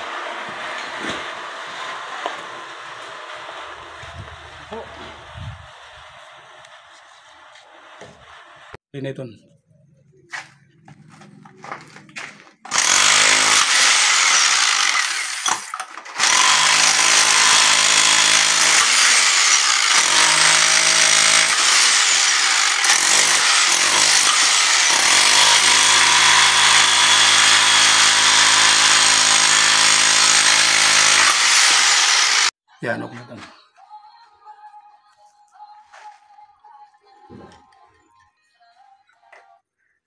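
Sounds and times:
power tool working into concrete: 0:00.0 - 0:08.8, 0:12.7 - 0:32.6.

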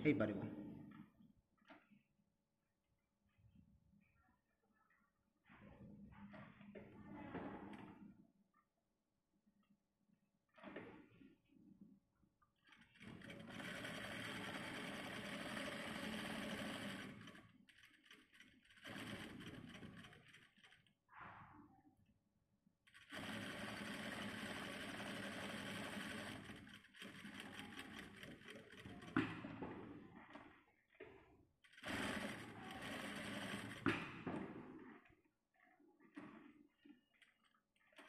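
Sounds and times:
electric sewing machine stitching: 0:12.7 - 0:20.9, 0:22.9 - 0:29.7, 0:31.6 - 0:34.2.

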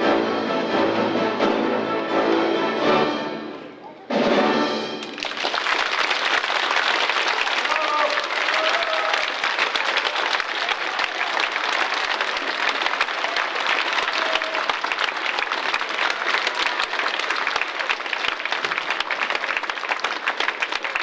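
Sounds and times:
audience applauding: 0:05.0 - 0:21.0.

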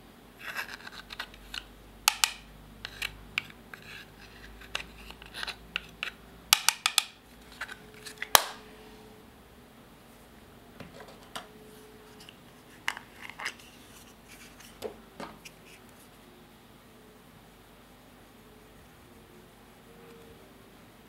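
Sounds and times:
plastic compacts clicking and cracking: 0:00.4 - 0:08.6.

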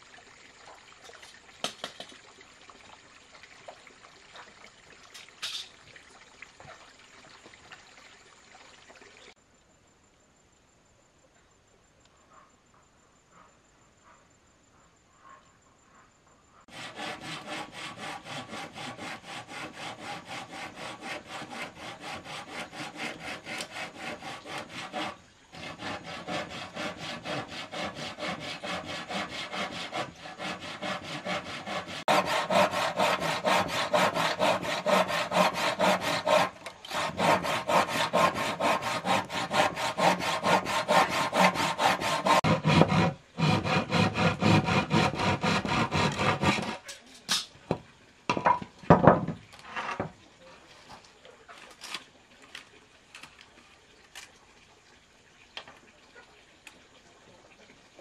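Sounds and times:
hand saw cutting wood: 0:16.7 - 0:47.4.

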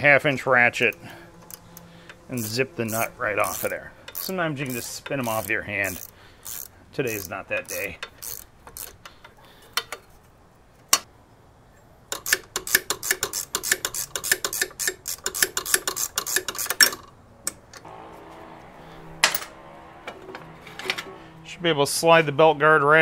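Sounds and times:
socket ratchet clicking: 0:00.8 - 0:09.9, 0:12.1 - 0:17.7.

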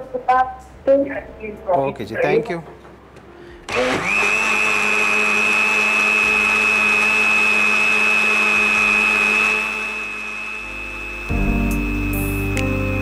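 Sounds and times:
blender running: 0:03.7 - 0:13.0.

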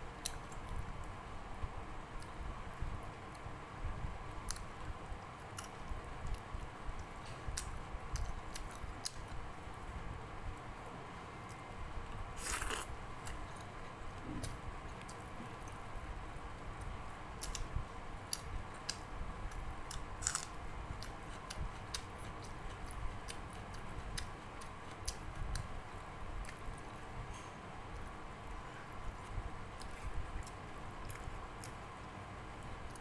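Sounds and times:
person chewing food: 0:12.4 - 0:15.8, 0:19.9 - 0:25.7.

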